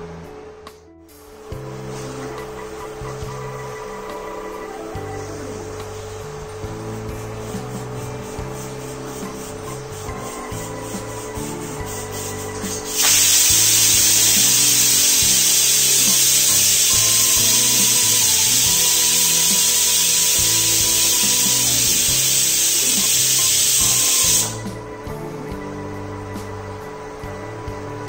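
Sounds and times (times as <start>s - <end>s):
pressure cooker whistling steam: 7.2s - 24.8s.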